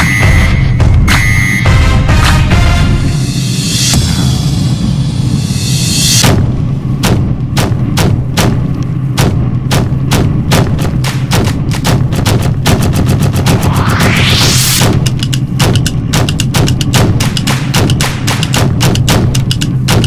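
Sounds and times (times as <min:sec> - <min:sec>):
electronic soundtrack music: 0:00.0 - 0:06.2, 0:10.9 - 0:20.0.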